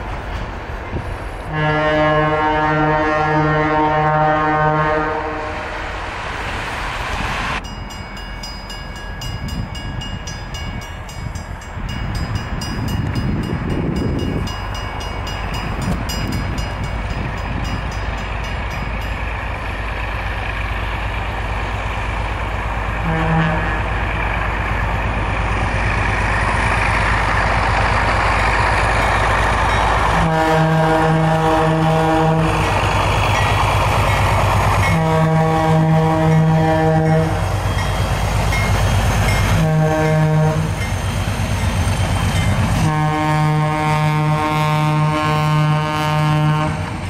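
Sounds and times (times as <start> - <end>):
diesel locomotive engine running: 0.0 - 47.0
locomotive horn blast: 1.5 - 5.8, 23.0 - 24.1, 30.1 - 32.8, 34.8 - 37.4, 39.5 - 40.8, 42.8 - 47.0.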